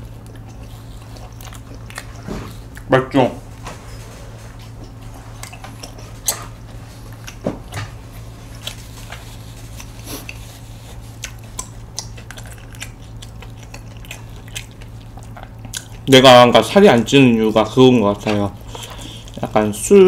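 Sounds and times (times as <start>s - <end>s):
chewing food: 0.0s - 3.6s, 4.2s - 19.8s
steady low hum: 0.0s - 20.0s
mouth smacks: 11.2s - 16.0s.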